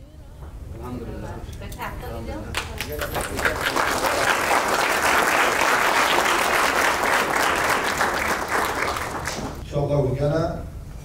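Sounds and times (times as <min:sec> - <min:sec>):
people applauding: 0:02.5 - 0:09.6.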